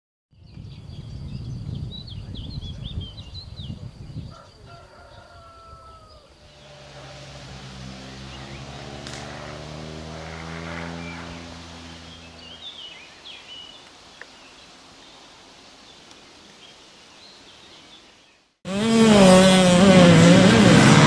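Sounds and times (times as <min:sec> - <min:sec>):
small birds chirping: 0:00.3 - 0:18.6
engine running steadily: 0:06.4 - 0:12.7.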